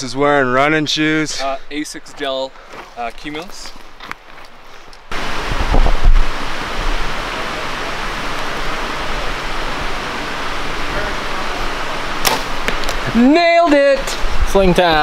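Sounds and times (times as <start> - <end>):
steady rushing noise: 5.1 - 15.0.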